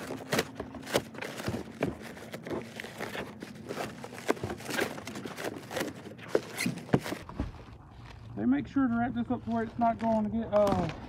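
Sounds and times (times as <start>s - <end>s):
plastic stretch wrap crinkling: 0.0s - 8.4s.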